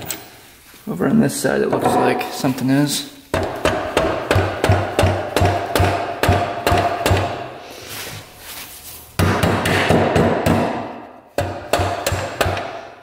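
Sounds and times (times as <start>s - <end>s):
rubber mallet pounding metal shaft: 3.3s - 7.5s, 9.2s - 12.9s.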